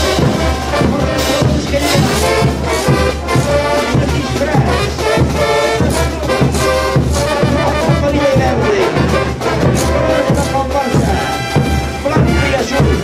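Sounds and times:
brass band melody: 0.0s - 13.0s
steady drum beat: 0.0s - 13.0s.

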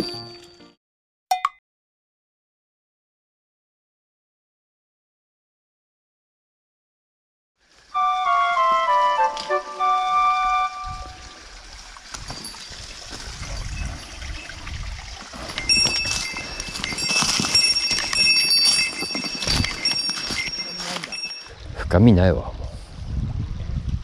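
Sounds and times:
chime-like jingle: 0.0s - 0.7s, 12.2s - 21.5s
faint trickle of water: 10.6s - 16.6s.

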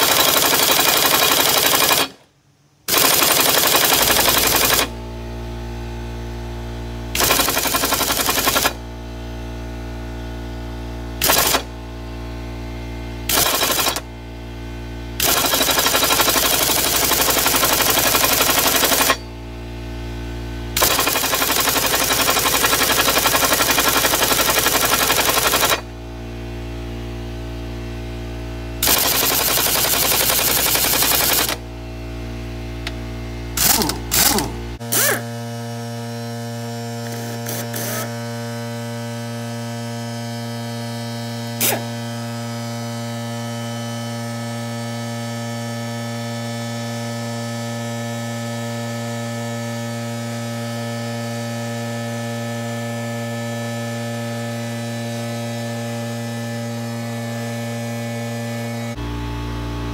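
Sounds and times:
pneumatic impact wrench hammering: 0.0s - 2.3s, 2.9s - 5.0s, 7.1s - 8.8s, 11.2s - 11.8s, 13.3s - 14.1s, 15.2s - 19.3s, 20.8s - 25.9s, 28.8s - 31.6s, 33.6s - 35.4s, 37.0s - 38.2s, 41.5s - 42.0s
steady hum: 3.9s - 35.2s, 58.5s - 59.9s.

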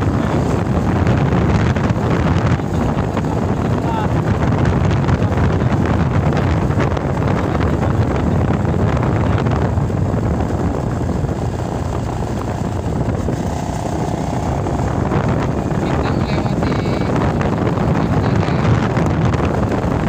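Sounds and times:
vehicle engine: 0.0s - 20.0s
wind buffeting microphone: 0.0s - 20.0s.

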